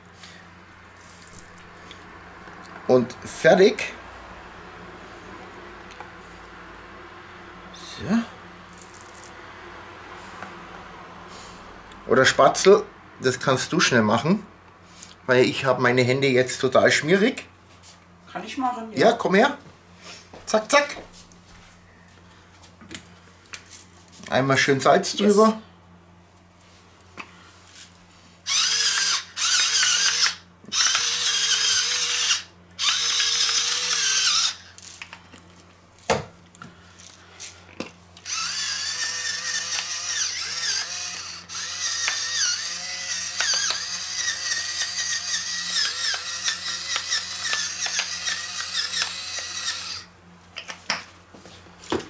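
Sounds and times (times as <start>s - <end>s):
electric pepper mill motor whining: 0.2s - 3.4s, 7.8s - 9.4s, 27.8s - 35.6s, 36.4s - 50.2s.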